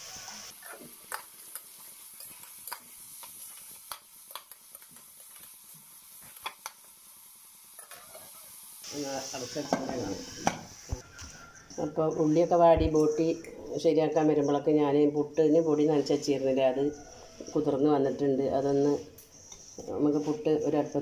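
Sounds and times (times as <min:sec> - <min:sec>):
faint sizzle: 0:00.0 - 0:21.0
taps on a pot: 0:09.7 - 0:10.7.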